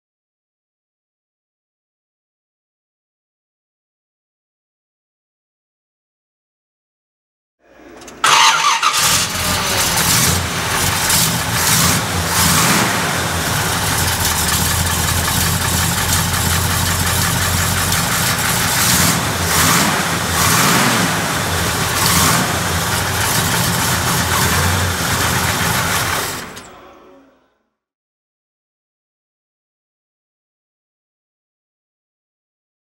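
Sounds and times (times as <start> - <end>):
car engine idling with throttle blips: 8.0 - 26.7.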